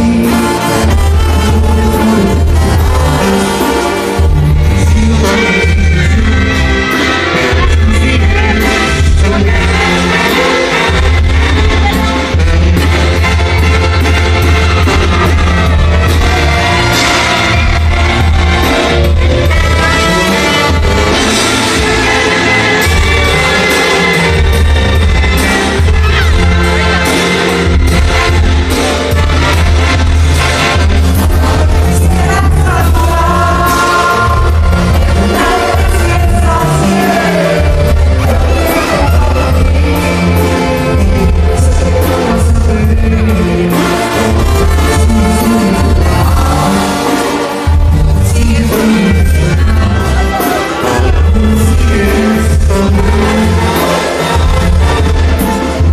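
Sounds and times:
brass and drums: 0.0s - 55.9s
person singing: 0.0s - 55.9s
tuba bass line: 0.0s - 55.9s.

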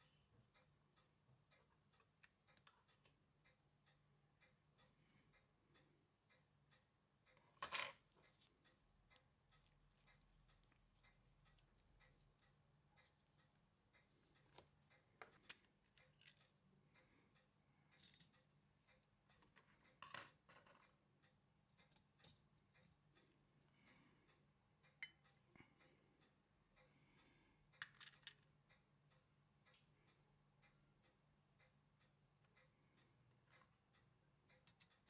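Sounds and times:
small tools clicking on metal: 15.2s - 16.6s, 18.0s - 21.0s.

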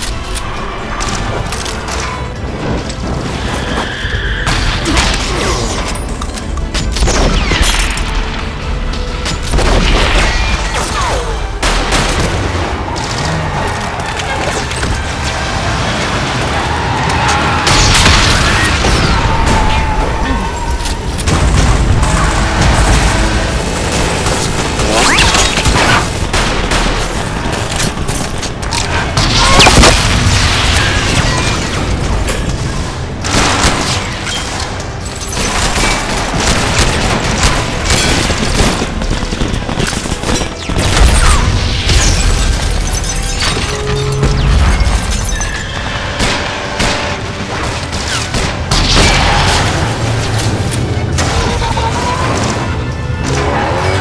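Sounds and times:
dramatic music: 0.0s - 54.0s
rapid gunfire: 21.2s - 32.0s, 35.4s - 42.0s.

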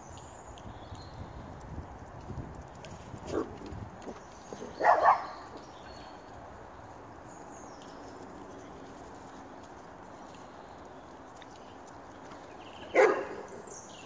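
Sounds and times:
faint outdoor background: 0.0s - 14.0s
dog barking: 4.8s - 5.4s, 12.9s - 13.5s.

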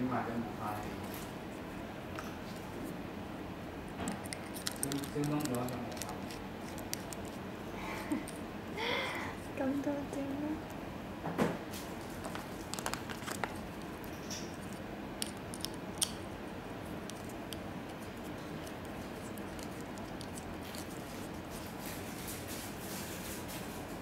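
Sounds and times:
steady background hiss: 0.0s - 24.0s
small clicks and scrapes: 4.0s - 7.4s, 17.0s - 23.0s.

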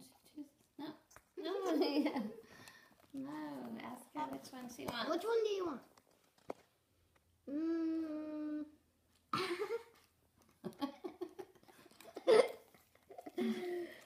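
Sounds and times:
person humming: 7.5s - 8.8s
person giggling and laughing: 9.3s - 10.0s, 10.6s - 14.0s.

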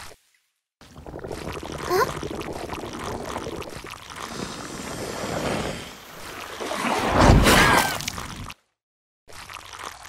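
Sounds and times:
mud and water sloshing: 5.4s - 8.6s.

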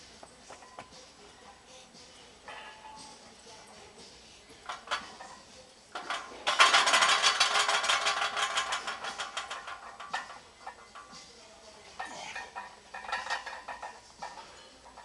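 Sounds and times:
barbell plates rattling: 4.6s - 11.4s, 12.0s - 15.0s.

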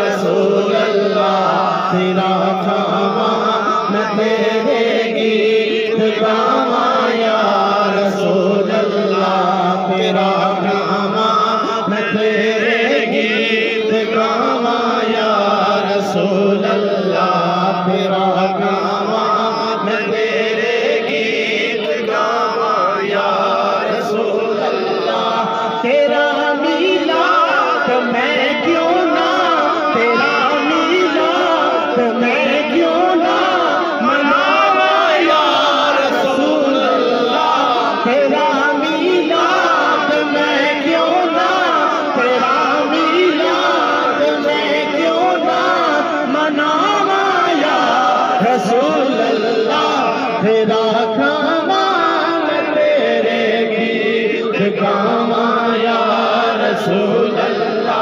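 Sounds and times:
man singing into a microphone: 0.0s - 58.0s.

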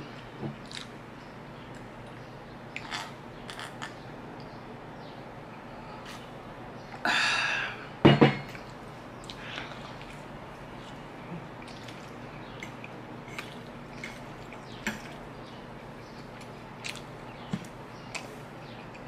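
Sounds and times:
glass mug knocking on wooden table: 8.1s - 8.4s
soft chewing: 8.6s - 19.0s.

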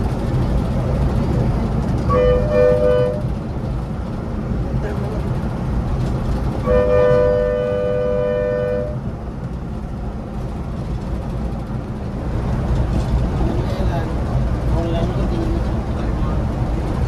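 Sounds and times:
bus rumbling on the move: 0.0s - 17.0s
two-note vehicle horn: 2.1s - 3.2s, 6.6s - 9.0s.

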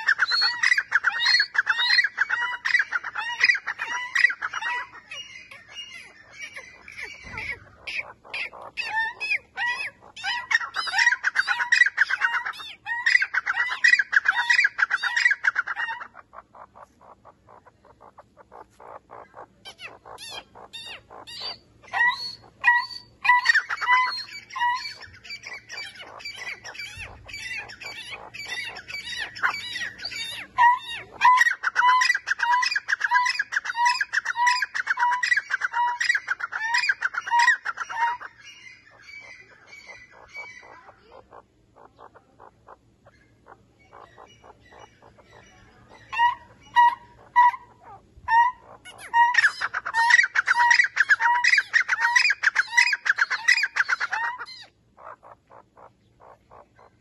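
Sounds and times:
francolin calling: 0.0s - 57.0s.

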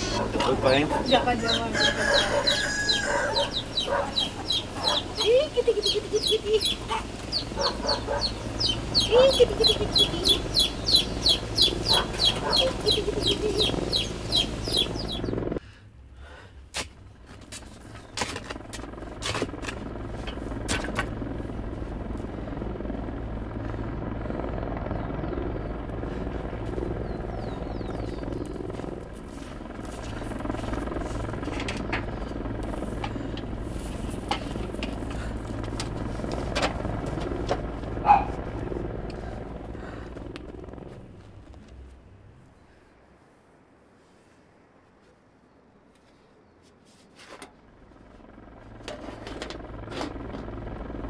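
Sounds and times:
chickens clucking: 0.0s - 15.3s
low outdoor hum: 0.0s - 51.0s.

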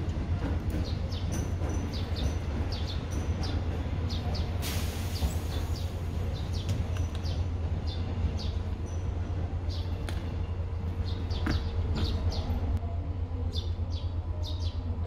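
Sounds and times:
small birds chirping: 0.7s - 12.8s, 13.4s - 15.0s
burst of hiss: 4.6s - 5.9s.

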